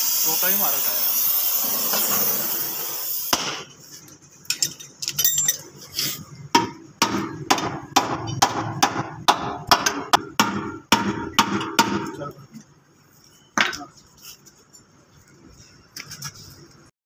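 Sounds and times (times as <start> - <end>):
light metal clinks: 4.5 - 5.8
hammer striking steel: 6.6 - 12.3.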